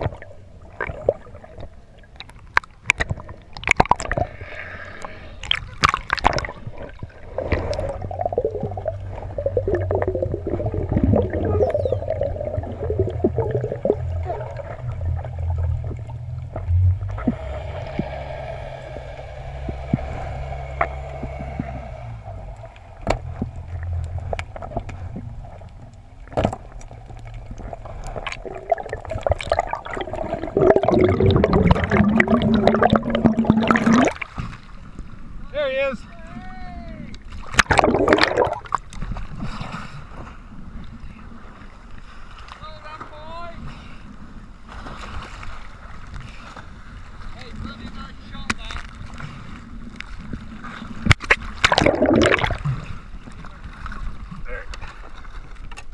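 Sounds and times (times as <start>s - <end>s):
water gurgling: 0.0s - 34.8s, 37.3s - 39.2s, 49.8s - 54.6s
underwater rumble of moving water: 0.0s - 55.9s.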